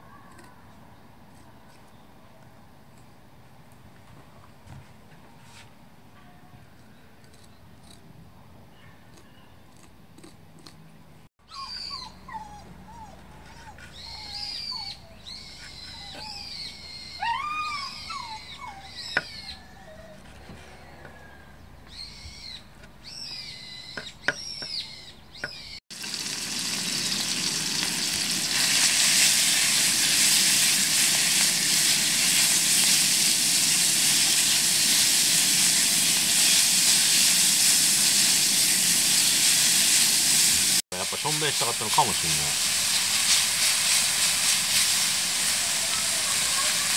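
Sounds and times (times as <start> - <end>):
high gliding animal calls: 11.4 - 25.8, 45.5 - 46.9
meat sizzling in a wok: 25.9 - 46.9.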